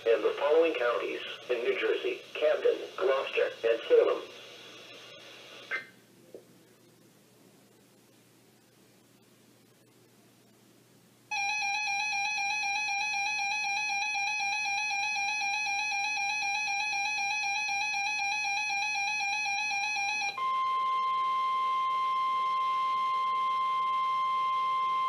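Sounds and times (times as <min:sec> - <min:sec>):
steady warning alarm tone: 0:11.3 - 0:25.0
wavering buzzy beep tone: 0:11.4 - 0:25.0.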